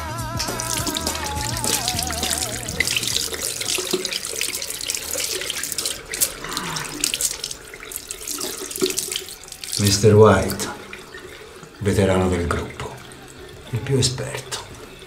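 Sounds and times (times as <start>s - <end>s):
water running and splashing: 0.4s - 15.0s
warbling tone: 0.5s - 11.6s.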